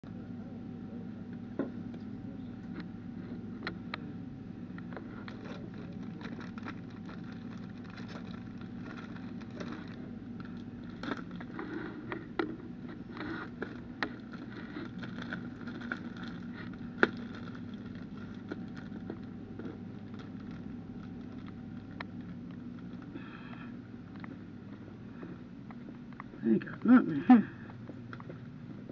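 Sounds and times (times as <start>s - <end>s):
indoor store hum: 0.0s - 28.9s.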